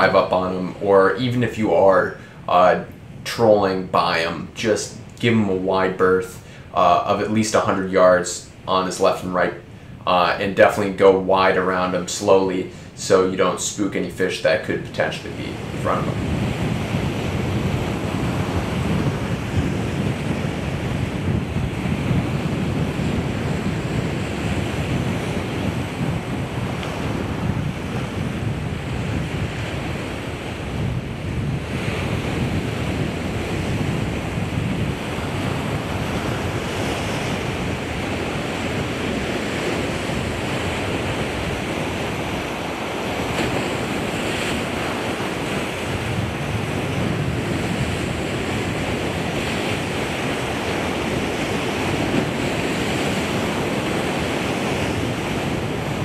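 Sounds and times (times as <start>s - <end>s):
ocean surf washing on shore: 0.0s - 56.0s
wind buffeting microphone: 14.7s - 56.0s.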